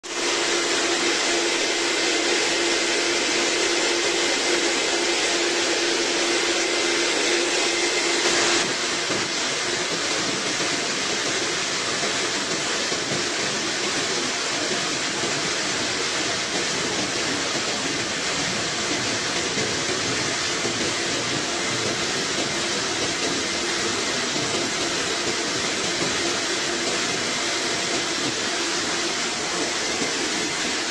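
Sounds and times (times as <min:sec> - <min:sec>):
grinder hum: 0:00.0 - 0:10.0
concrete floor grinder running: 0:00.0 - 0:30.9.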